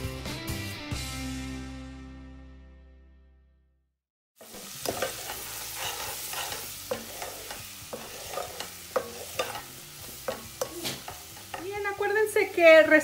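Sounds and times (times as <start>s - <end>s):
background music: 0.0s - 3.0s
wooden spoon scraping a pot: 4.4s - 11.7s
food sizzling in a pot: 4.4s - 13.0s.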